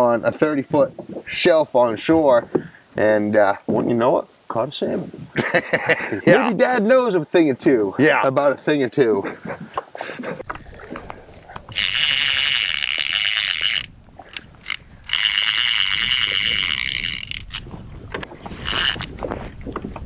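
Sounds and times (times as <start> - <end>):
fishing reel drag buzzing: 11.7 - 17.6, 18.6 - 19.1.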